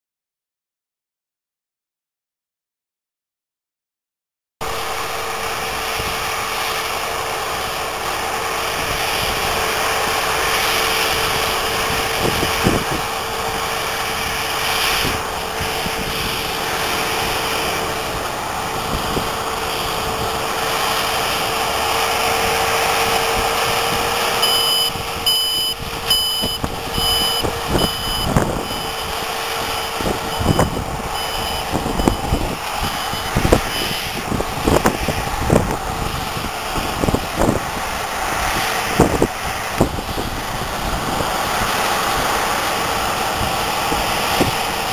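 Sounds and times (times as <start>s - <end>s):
combine harvester humming: 4.6s - 44.9s
reversing alarm beeping: 24.3s - 34.2s.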